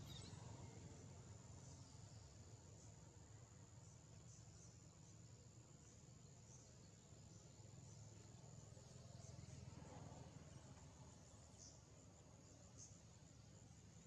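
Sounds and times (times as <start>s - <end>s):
high-pitched insect trill: 0.0s - 14.0s.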